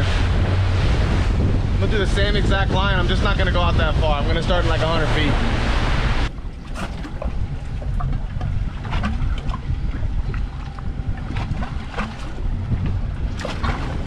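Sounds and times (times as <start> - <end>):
wind on microphone: 0.0 - 14.0
water slapping against boat hull: 4.4 - 14.0.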